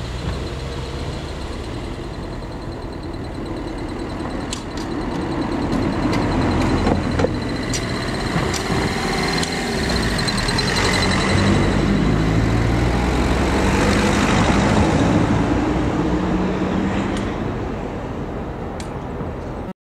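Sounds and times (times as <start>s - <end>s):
cars passing close by: 0.0s - 19.7s
tyres knocking on rails: 0.2s - 12.7s.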